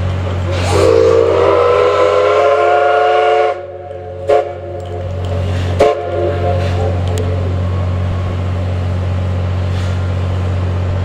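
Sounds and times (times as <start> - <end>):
steam locomotive whistle: 0.5 - 7.5.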